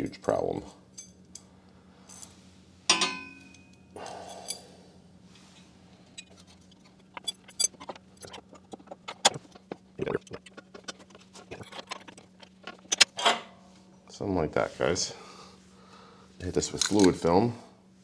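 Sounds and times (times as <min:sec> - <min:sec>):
metal scrape: 0:05.3 - 0:13.7.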